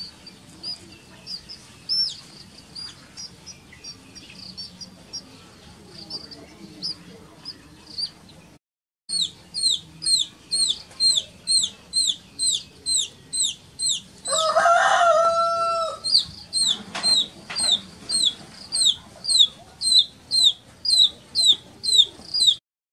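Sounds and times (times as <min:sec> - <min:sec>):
chick peeping: 0:00.0 - 0:22.6
rooster crowing: 0:14.2 - 0:16.2.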